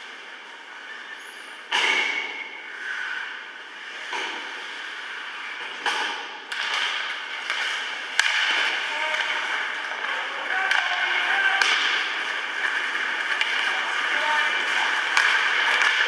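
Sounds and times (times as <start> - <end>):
rink background noise: 0.0 - 16.0
hockey stick and puck cracks: 5.6 - 16.0.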